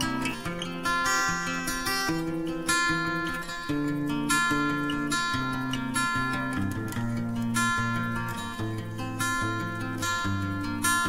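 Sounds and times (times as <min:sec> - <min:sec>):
acoustic guitar piece: 0:00.0 - 0:11.0.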